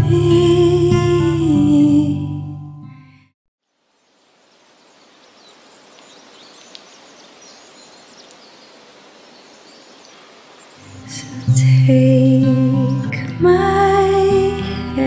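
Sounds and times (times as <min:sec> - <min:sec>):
steady hiss: 0:03.6 - 0:11.7
small click: 0:06.7 - 0:06.9.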